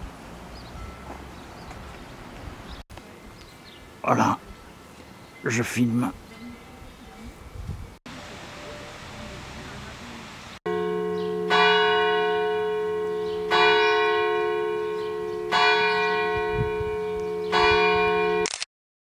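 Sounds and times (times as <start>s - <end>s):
church bell tolling: 10.7s - 18.4s.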